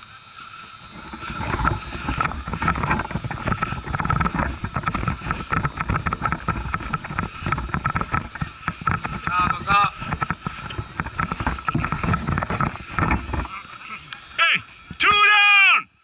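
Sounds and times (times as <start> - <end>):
wind rumble on microphone: 0.9 - 13.8
camera rustling and knocks: 1.0 - 13.6.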